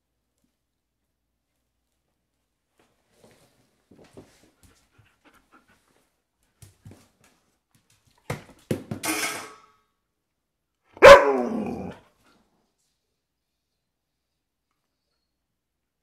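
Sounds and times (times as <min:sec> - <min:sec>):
dog barking: 0:11.0 - 0:12.0.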